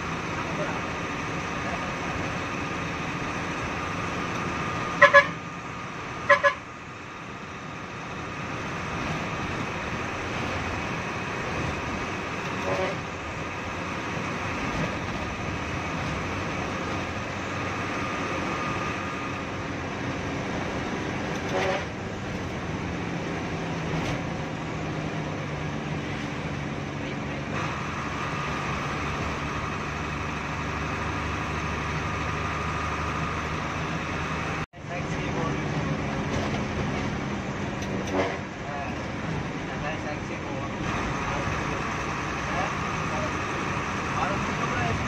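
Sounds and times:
bus engine and road noise: 0.0 - 45.0
bus horn tooting: 4.9 - 5.6, 6.2 - 6.8, 12.6 - 13.2, 21.4 - 22.0.

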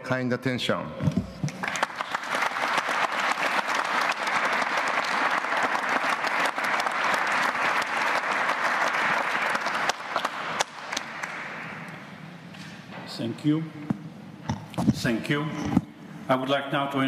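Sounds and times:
crowd applauding: 1.5 - 12.1.

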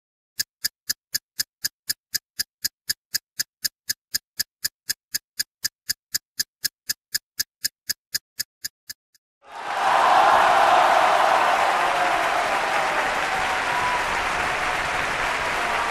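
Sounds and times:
timer ticking: 0.4 - 9.2.

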